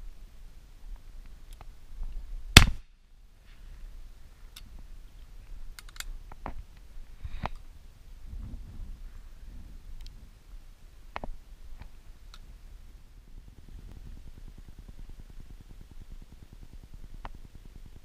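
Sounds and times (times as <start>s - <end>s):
shotgun shot: 2.6s - 2.8s.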